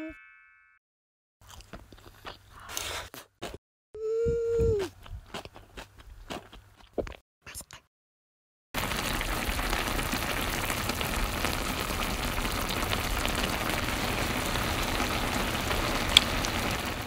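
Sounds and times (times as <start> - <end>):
sauce bubbling and sizzling: 8.8 - 17.0
small pops: 16.1 - 16.4.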